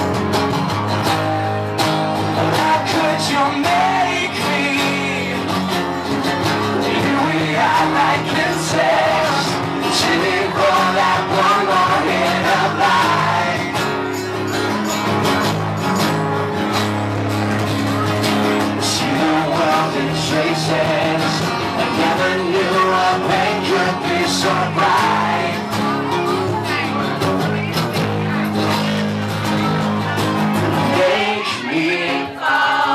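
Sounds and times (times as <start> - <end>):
electric bass: 0.0 - 31.0
strummed acoustic guitars: 0.0 - 32.9
person singing: 2.3 - 5.6, 6.7 - 13.9, 18.8 - 27.5, 30.7 - 32.9.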